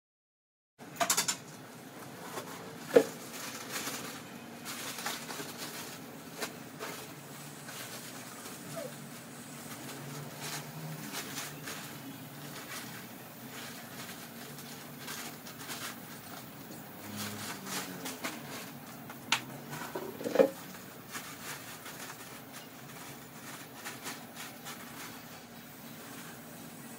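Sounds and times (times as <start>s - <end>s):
utensils and dishes clicking: 1.0s - 1.6s.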